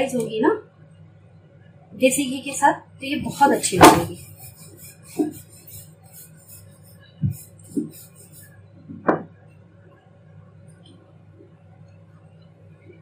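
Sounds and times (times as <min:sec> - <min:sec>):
rolling pin rolling dough: 0:03.0 - 0:09.4
rolling pin knocking on board: 0:08.9 - 0:09.4.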